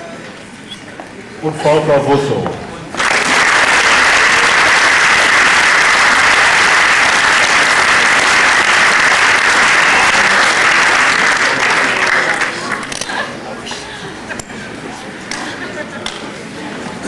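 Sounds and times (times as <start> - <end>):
large audience applauding: 2.9 - 13.4.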